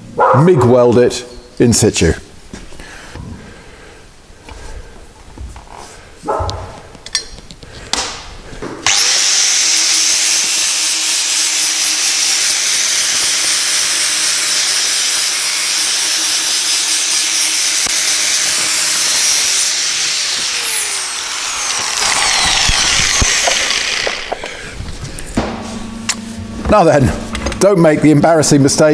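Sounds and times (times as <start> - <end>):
angle grinder grinding metal: 8.8 - 28.8.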